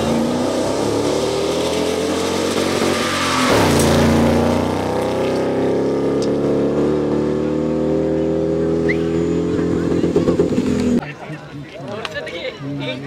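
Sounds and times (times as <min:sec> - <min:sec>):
car engine revving hard: 0:00.0 - 0:11.0.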